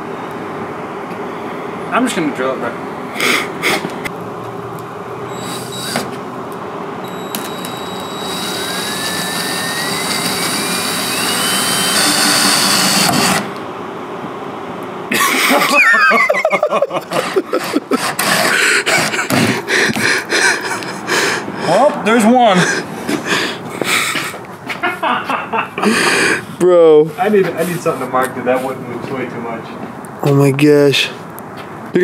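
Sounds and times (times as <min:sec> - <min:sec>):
cordless drill whining: 0:05.3 - 0:06.2, 0:07.0 - 0:13.5.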